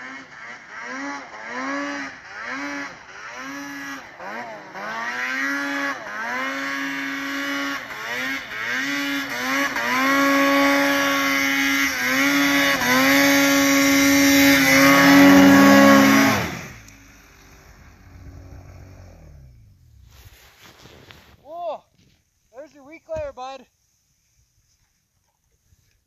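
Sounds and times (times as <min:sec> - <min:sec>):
snowmobile engine revving: 0:00.0 - 0:21.6.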